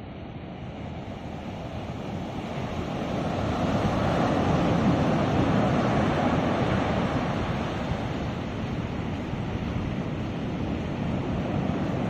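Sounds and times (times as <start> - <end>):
ocean surf breaking on beach: 0.6 - 12.0
wind buffeting microphone: 0.6 - 12.0.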